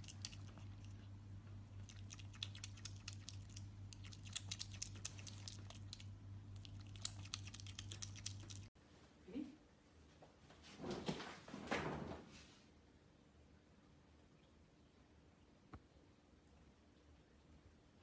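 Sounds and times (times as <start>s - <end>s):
otter chewing and crunching food: 0.0s - 8.8s
steady low hum: 0.0s - 18.0s.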